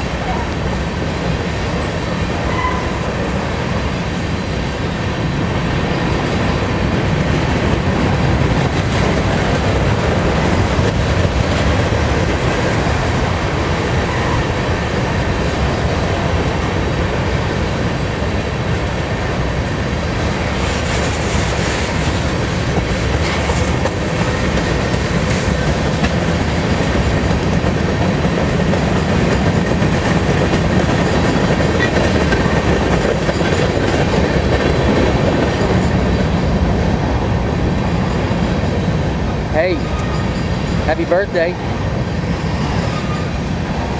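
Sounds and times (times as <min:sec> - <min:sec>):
freight train rumbling: 0:00.0 - 0:43.9
steel wheels clattering on rails: 0:20.6 - 0:36.5, 0:37.7 - 0:43.8.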